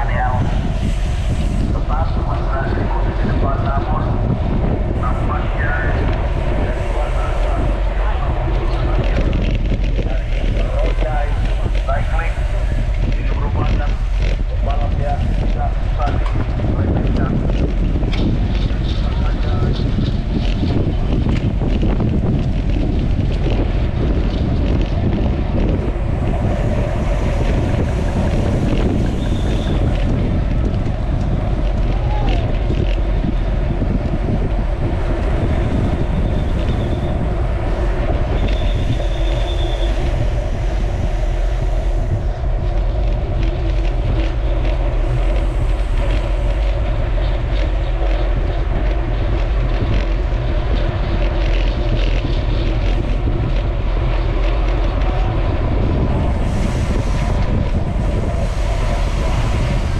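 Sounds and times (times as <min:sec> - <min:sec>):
wind buffeting on microphone: 0:00.0 - 0:59.9
high whistling tones: 0:38.3 - 0:40.2.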